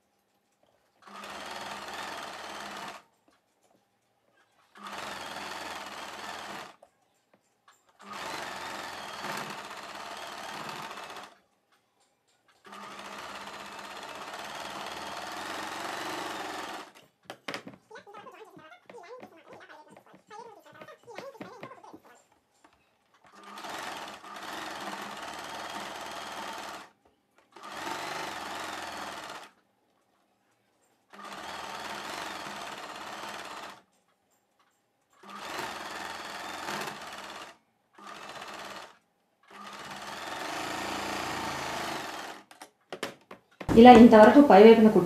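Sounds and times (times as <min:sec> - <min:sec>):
electric sewing machine stitching: 0:01.0 - 0:03.1, 0:04.7 - 0:06.8, 0:08.0 - 0:11.4, 0:12.6 - 0:17.0, 0:23.2 - 0:29.6, 0:31.1 - 0:33.9, 0:35.2 - 0:42.7.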